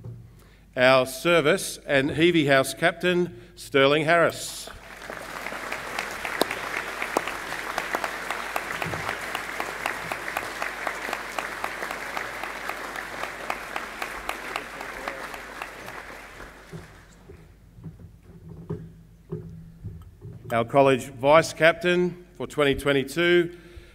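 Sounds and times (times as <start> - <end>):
audience applauding: 4.7 - 17.5.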